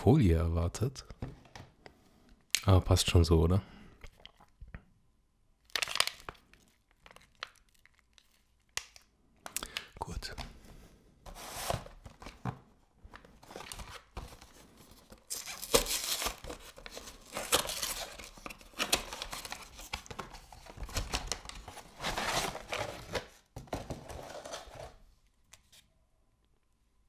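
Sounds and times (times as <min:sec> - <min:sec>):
packaging rustling: 0:11.3 - 0:25.1
cardboard tearing: 0:15.2 - 0:20.0.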